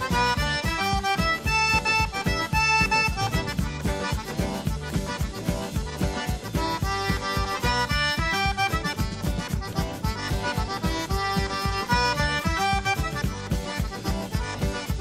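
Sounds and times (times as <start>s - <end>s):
accordion dance music: 0.0s - 15.0s.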